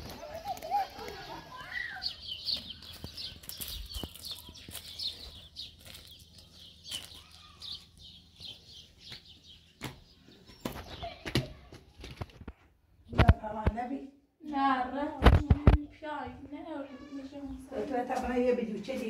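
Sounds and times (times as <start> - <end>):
footsteps on gravel: 0.0 - 11.2
small birds chirping: 0.0 - 14.1, 15.2 - 19.0.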